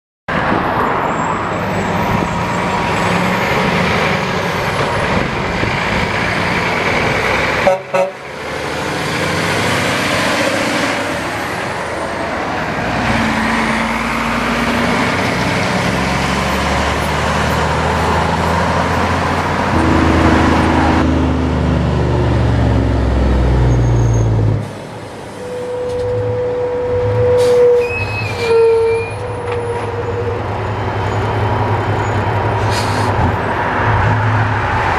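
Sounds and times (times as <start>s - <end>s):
trucks driving past: 0.3s - 28.5s, 29.1s - 34.9s
tyre and road noise: 0.3s - 34.9s
horn tooting: 7.6s - 8.2s, 19.7s - 21.2s, 25.4s - 30.6s.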